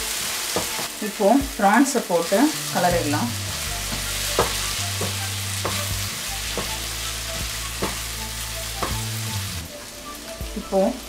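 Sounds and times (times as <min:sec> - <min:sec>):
food sizzling in oil: 0:00.0 - 0:11.0.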